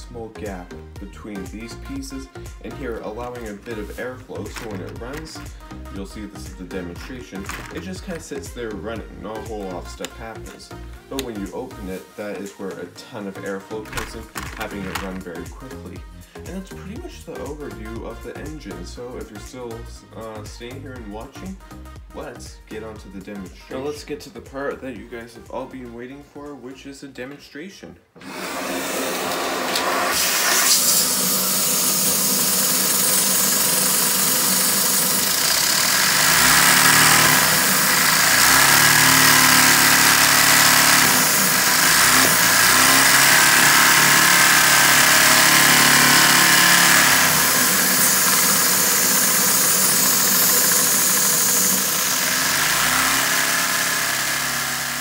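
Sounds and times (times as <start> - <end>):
vacuum cleaner suction: 3.2 - 5.7, 6.8 - 8.5, 13.7 - 15.4, 28.2 - 55.0.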